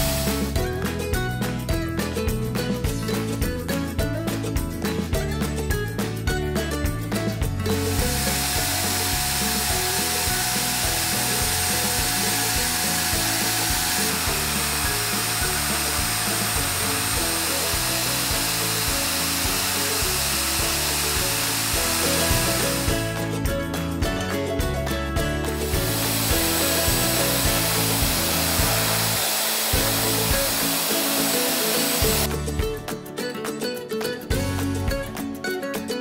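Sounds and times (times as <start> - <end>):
background music: 0.0 - 36.0
vacuum cleaner whining: 7.7 - 23.0, 25.6 - 32.3.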